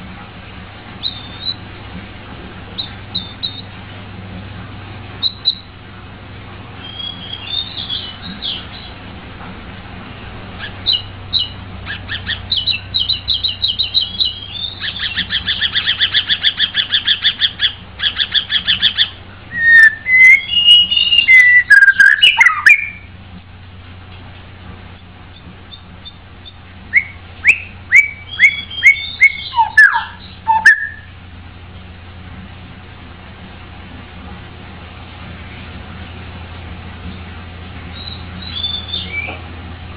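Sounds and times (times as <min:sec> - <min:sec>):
bird singing: 0:01.0 - 0:01.8, 0:02.7 - 0:03.7, 0:05.2 - 0:05.7, 0:06.8 - 0:09.0, 0:10.6 - 0:23.1, 0:25.0 - 0:31.2, 0:37.9 - 0:39.4.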